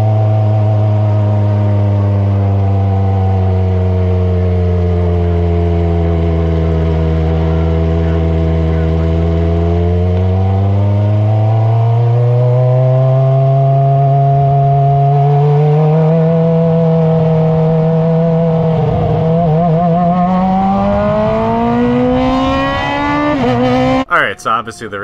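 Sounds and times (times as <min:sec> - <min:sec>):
racing car engine accelerating: 0:00.0 - 0:25.0.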